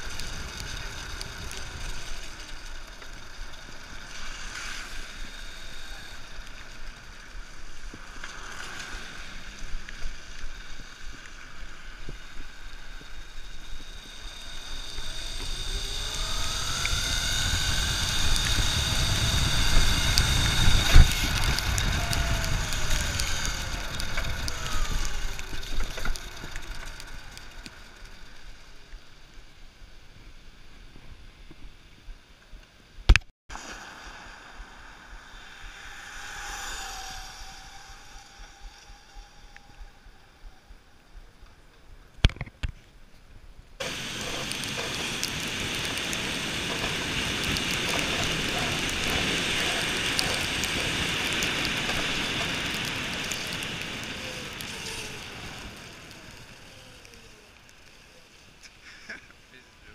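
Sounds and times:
tyres hissing on wet road: 0.0s - 29.4s, 33.5s - 40.3s, 43.8s - 59.9s
wind on microphone: 10.8s - 28.3s, 33.6s - 41.5s, 43.8s - 57.6s.

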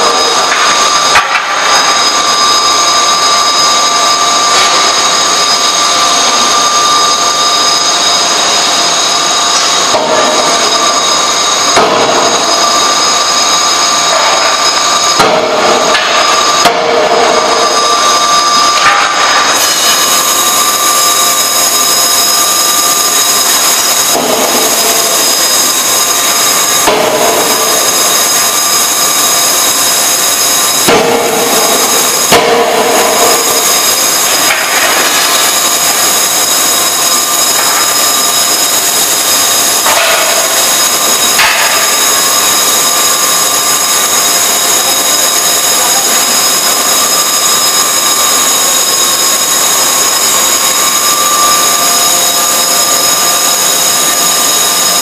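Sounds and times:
forging hammer striking metal: 0.0s - 2.0s, 11.7s - 13.0s, 14.0s - 43.5s
high steady whining tones: 0.0s - 55.0s
shop machinery drone: 0.0s - 55.0s.

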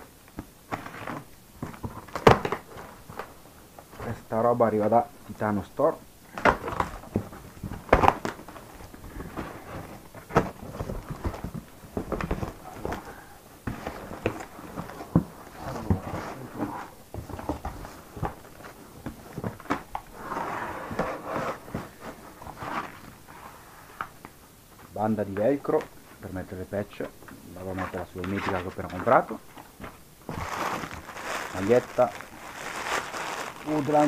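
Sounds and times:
cardboard thump: 29.8s - 31.1s
packing material rustling: 30.2s - 34.0s.

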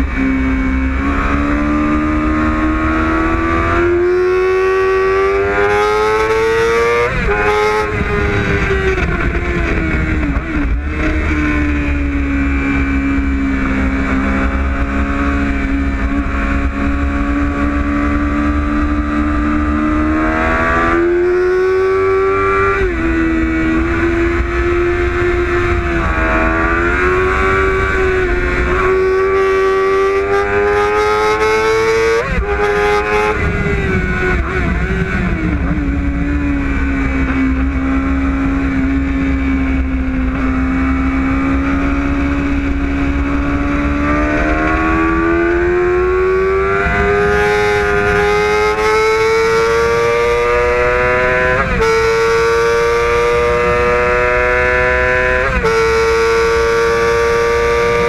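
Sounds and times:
motorcycle engine revving: 0.0s - 58.0s
wind on microphone: 0.0s - 58.0s.

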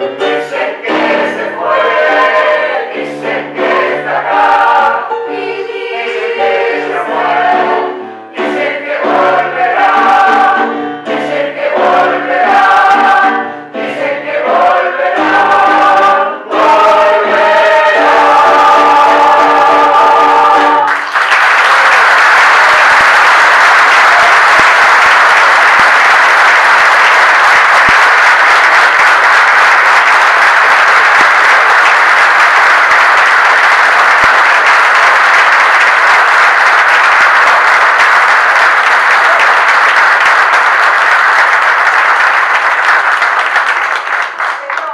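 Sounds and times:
mixed choir holding a chord: 0.0s - 21.0s
audience applause: 20.8s - 44.9s.

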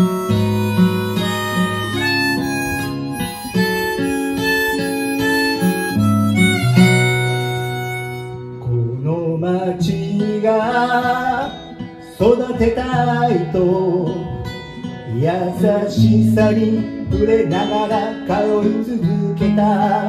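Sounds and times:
harmonica melody: 0.0s - 9.0s
acoustic guitar accompaniment: 0.0s - 20.0s.

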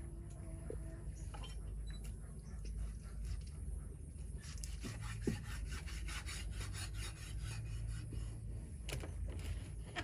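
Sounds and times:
cleaver sawing through meat: 4.2s - 8.4s.

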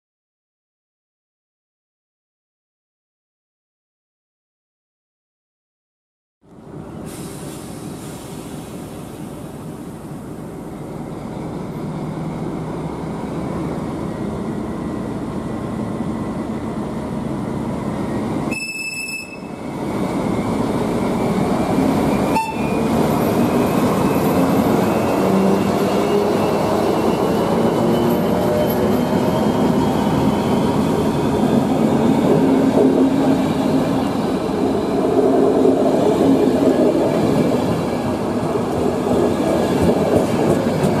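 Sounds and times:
diesel locomotive passing: 6.6s - 41.0s
high squeal: 18.2s - 32.7s.

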